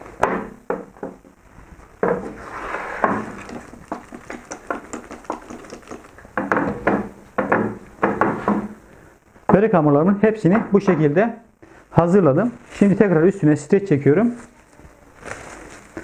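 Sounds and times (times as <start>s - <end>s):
dough balls clinking and knocking: 3.0s - 8.8s.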